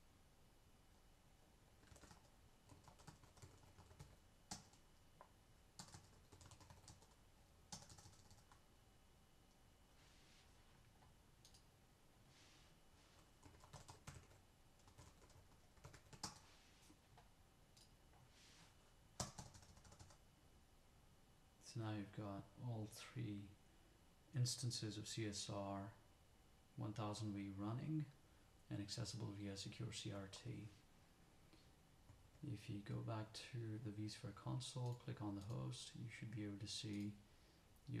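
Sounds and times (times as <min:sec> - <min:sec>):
keyboard typing: 0:01.8 - 0:08.6, 0:13.4 - 0:16.5, 0:19.2 - 0:20.2.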